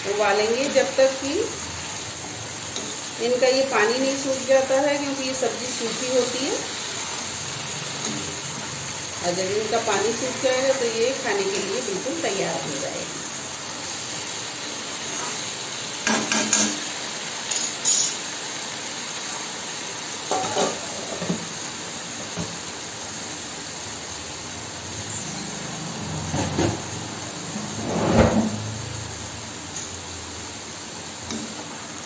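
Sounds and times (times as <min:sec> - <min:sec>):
beans sizzling in a pan: 0:00.0 - 0:32.0
water boiling off: 0:20.3 - 0:32.0
steel spatula scraping a pan: 0:27.6 - 0:28.8.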